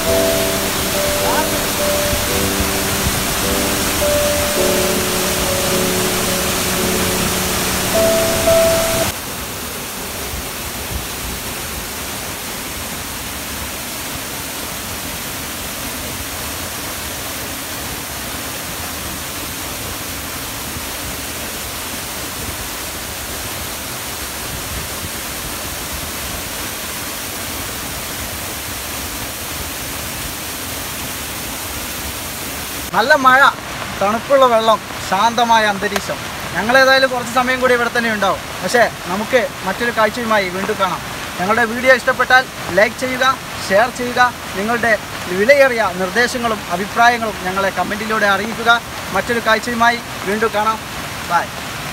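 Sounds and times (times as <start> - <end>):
background music: 0.0 - 9.1
waterfall rushing onto rock: 0.0 - 51.9.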